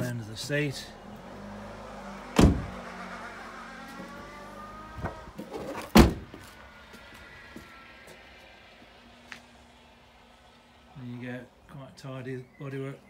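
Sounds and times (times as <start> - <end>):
car door thumps: 2.4 - 2.8, 5.0 - 6.4.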